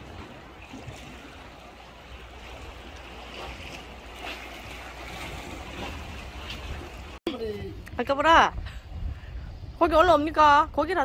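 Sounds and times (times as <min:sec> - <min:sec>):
sea water washing on breakwater: 0:00.0 - 0:07.2
wind rumble on microphone: 0:00.0 - 0:11.0.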